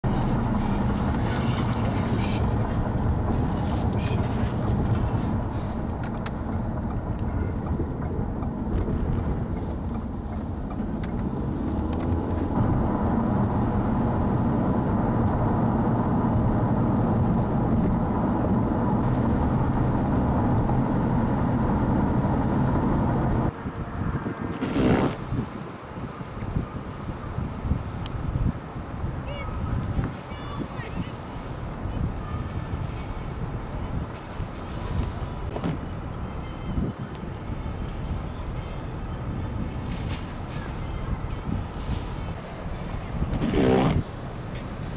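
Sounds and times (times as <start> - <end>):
car engine and tyre noise: 0.0 - 44.9
wind noise: 0.0 - 44.9.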